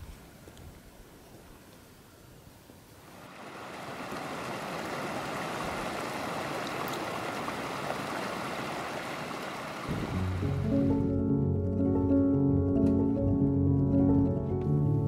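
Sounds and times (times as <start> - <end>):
creek running over rocks: 3.0 - 10.6.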